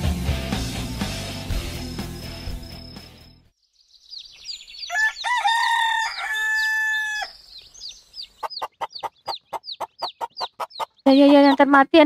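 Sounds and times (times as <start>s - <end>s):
small birds chirping: 1.5s - 12.0s
rooster crowing: 4.8s - 7.4s
quick repeated chirping: 7.8s - 11.8s.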